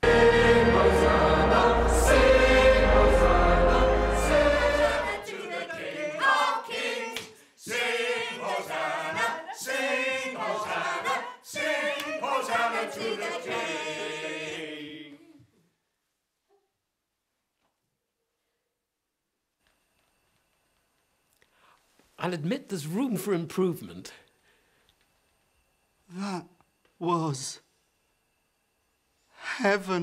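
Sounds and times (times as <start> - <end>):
church choir singing: 0.0 - 15.3.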